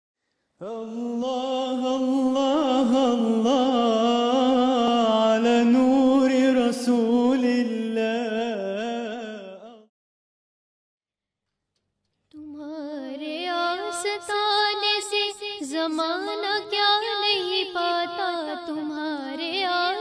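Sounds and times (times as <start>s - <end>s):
person chanting: 0.6s - 9.9s.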